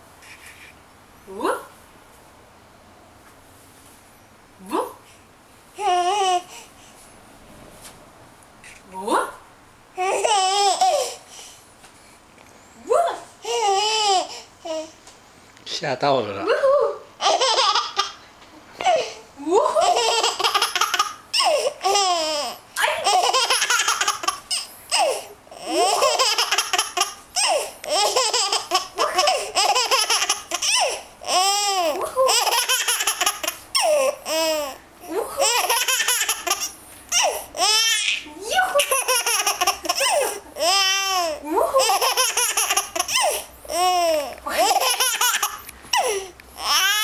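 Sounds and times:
baby laughing: 0:10.0 - 0:11.2, 0:13.4 - 0:14.9, 0:17.2 - 0:18.2, 0:19.6 - 0:47.0
baby high-pitched squeals: 0:35.4 - 0:47.0.

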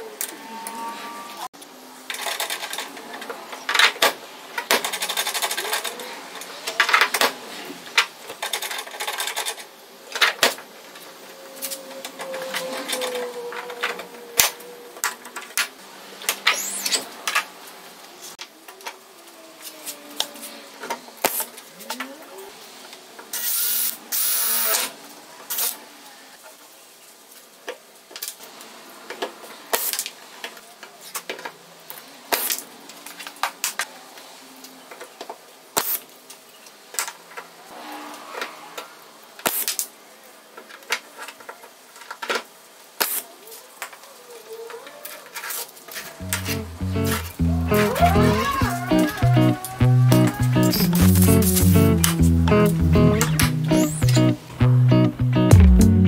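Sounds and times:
pneumatic air tool bursts: 0:23.3 - 0:24.9.

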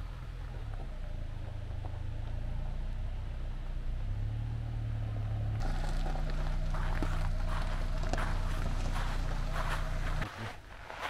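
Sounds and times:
car engine idling: 0:00.0 - 0:11.0
tyres crunching on gravel: 0:05.6 - 0:11.0.

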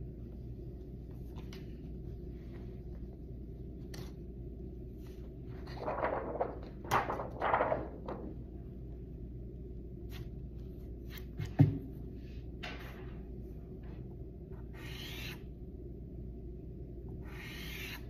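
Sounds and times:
steady low hum: 0:00.0 - 0:18.0
paper rustling: 0:05.0 - 0:08.4.

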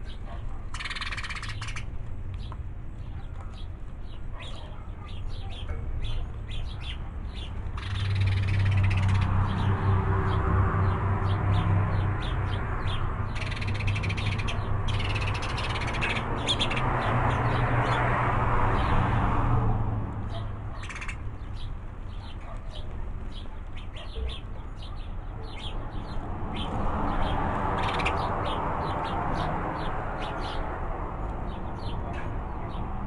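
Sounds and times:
small birds calling: 0:00.0 - 0:19.0, 0:20.2 - 0:33.0
car passing: 0:07.3 - 0:21.4, 0:25.9 - 0:33.0.

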